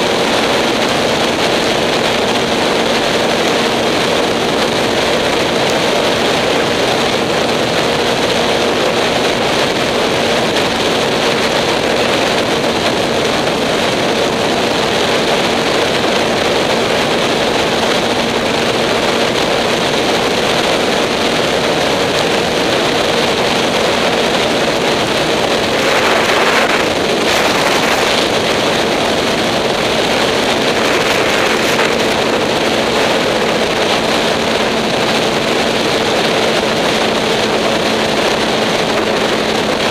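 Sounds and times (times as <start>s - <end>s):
motorcycle engine cruising: 0.0s - 39.9s
wind rushing over helmet: 0.0s - 39.9s.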